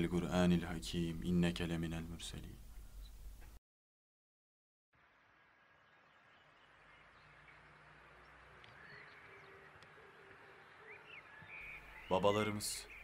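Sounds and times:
faint outdoor ambience: 0.0s - 3.6s, 5.0s - 13.0s.

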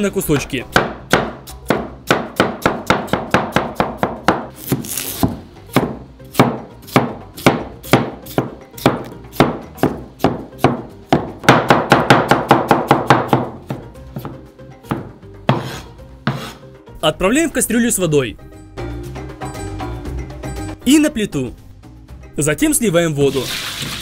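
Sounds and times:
knife chopping on plastic board: 0.3s - 16.6s.

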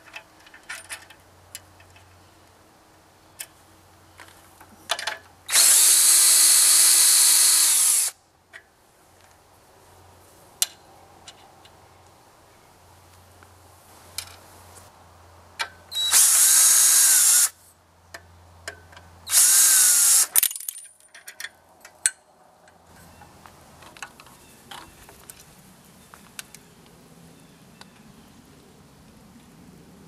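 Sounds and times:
cordless drill whirring: 5.5s - 8.2s, 16.0s - 17.5s, 19.3s - 20.3s
metallic clicks of bolts: 20.2s - 22.2s.

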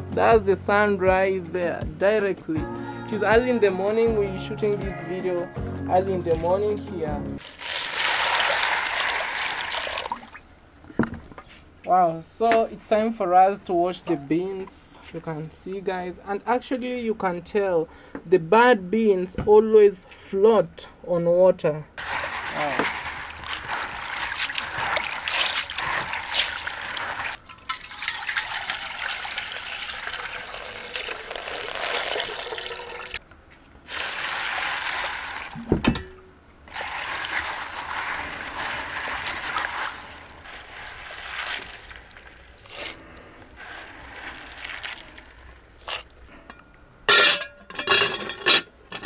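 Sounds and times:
hands rubbing beans in water: 7.4s - 10.4s, 22.0s - 33.1s, 33.9s - 35.6s, 36.7s - 46.2s
water splashing and trickling: 7.4s - 10.5s, 22.0s - 33.2s, 33.9s - 46.1s.

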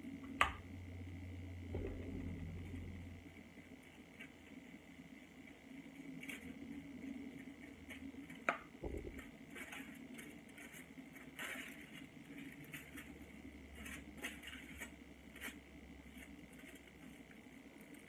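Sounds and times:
foil crinkling: 9.1s - 18.0s.

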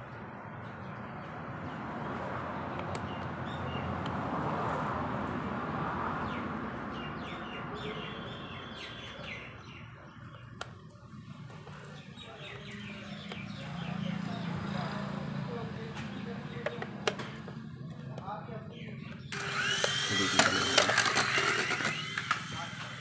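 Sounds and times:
small birds chirping: 0.0s - 4.1s, 6.2s - 20.7s.

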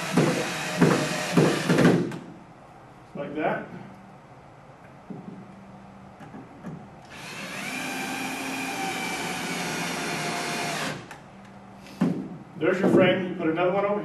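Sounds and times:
cordless drill driving screw: 0.0s - 2.0s, 7.1s - 11.1s.

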